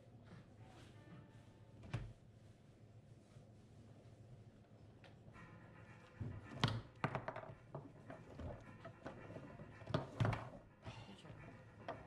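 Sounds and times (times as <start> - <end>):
foosball knocks and clacks: 6.3 - 10.7, 11.3 - 12.0.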